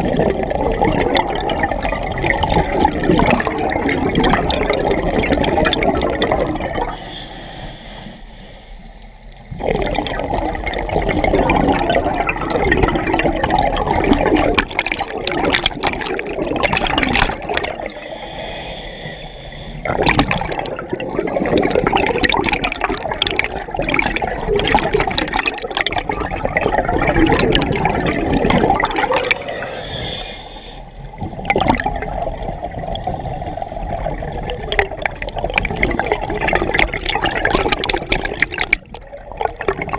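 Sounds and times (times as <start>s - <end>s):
exhaled bubbles gurgling underwater: 0.0s - 8.2s, 8.9s - 39.9s
diver breathing in: 6.8s - 9.6s, 17.8s - 20.1s, 20.8s - 21.8s, 28.9s - 31.2s.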